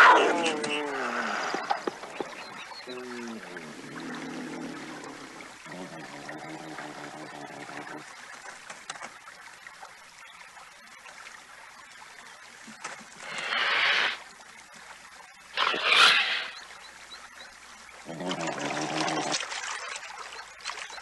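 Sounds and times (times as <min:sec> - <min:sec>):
cougar hissing snarls: 0:13.2 - 0:14.2, 0:15.6 - 0:16.6.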